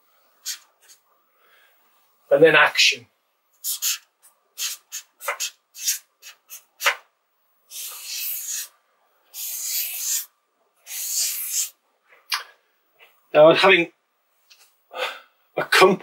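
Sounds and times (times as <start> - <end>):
marker squeaking on paper: 0.4 - 1.0, 3.6 - 7.0, 7.7 - 11.8.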